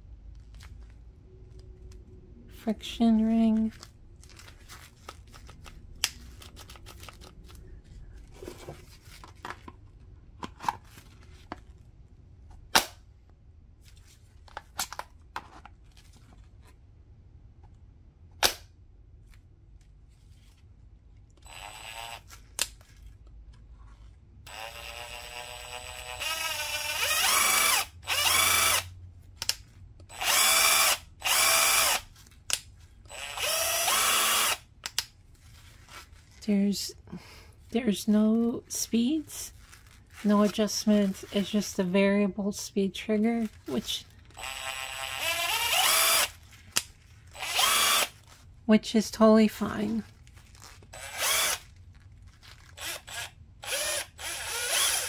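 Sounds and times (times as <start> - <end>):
impact wrench motor whining: 21.4 - 22.4, 24.5 - 28.9, 30.1 - 32.1, 33.1 - 34.7, 43.5 - 46.4, 47.3 - 48.3, 50.8 - 51.7, 52.7 - 55.0.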